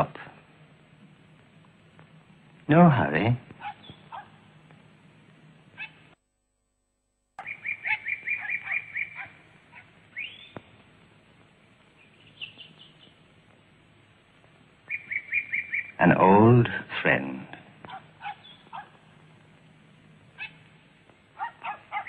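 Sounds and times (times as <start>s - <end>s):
faint hum: 0.0s - 22.0s
small birds chirping: 3.6s - 4.4s, 7.4s - 16.4s, 17.8s - 22.0s
bird rising whistle: 7.4s - 9.3s, 10.1s - 10.6s, 14.9s - 16.0s.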